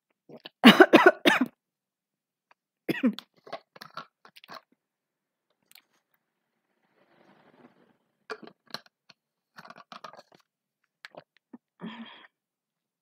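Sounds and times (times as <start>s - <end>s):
person coughing: 0.6s - 1.6s, 2.9s - 3.2s.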